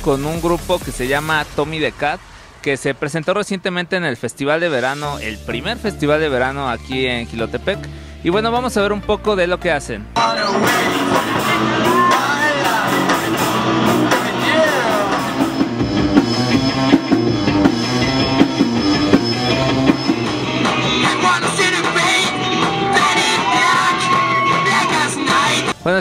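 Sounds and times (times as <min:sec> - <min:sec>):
drum kit: 0:00.0 - 0:03.4, 0:10.2 - 0:25.8
person singing: 0:10.2 - 0:15.4, 0:20.6 - 0:25.8
electric guitars: 0:10.2 - 0:25.8.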